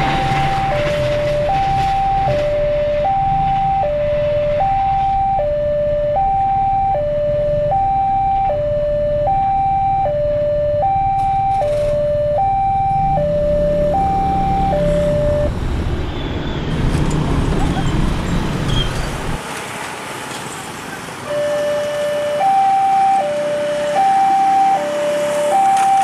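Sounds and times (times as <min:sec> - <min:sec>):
level crossing alarm two-tone: 0:00.0 - 0:15.5, 0:21.3 - 0:26.0.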